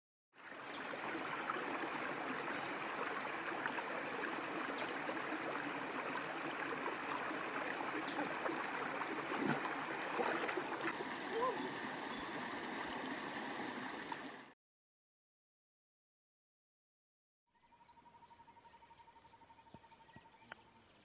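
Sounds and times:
stream rushing over rocks: 0.4s - 14.5s.

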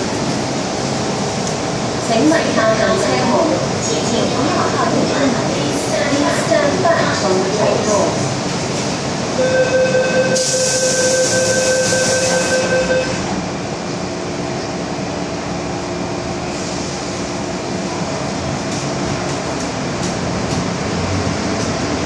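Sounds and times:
subway train rumble and hum: 0.0s - 22.0s
door-closing warning tone: 9.4s - 13.3s
train doors hissing: 10.4s - 13.2s.

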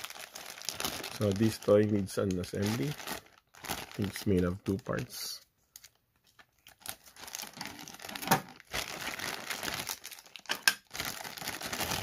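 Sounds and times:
plastic bag crinkling: 0.0s - 5.0s, 5.7s - 12.0s.

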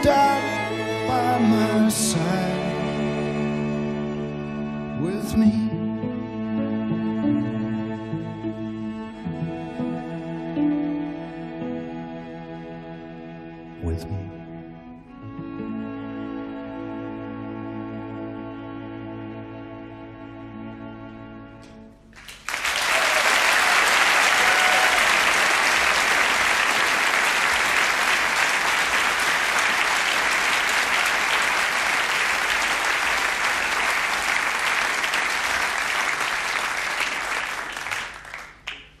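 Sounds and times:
audience applause: 22.1s - 39.0s.

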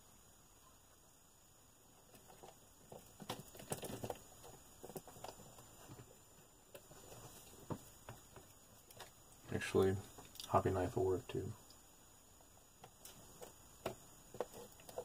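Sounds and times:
small parts clicking and scraping: 2.0s - 6.1s, 12.8s - 15.0s.

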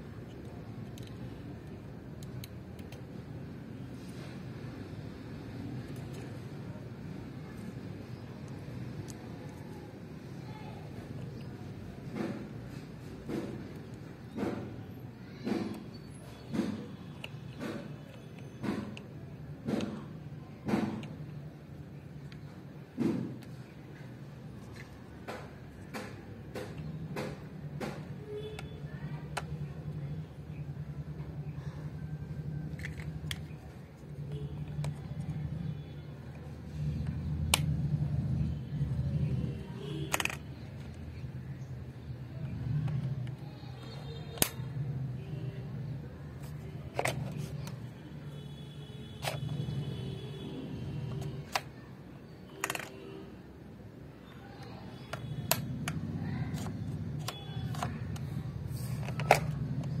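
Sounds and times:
plastic buttons clicking: 0.2s - 3.2s, 39.8s - 41.3s, 42.4s - 44.7s, 46.4s - 47.9s, 49.2s - 50.0s, 50.9s - 51.8s, 52.4s - 53.2s, 54.7s - 60.0s
sharp clicks: 42.5s - 44.7s, 55.0s - 58.4s.

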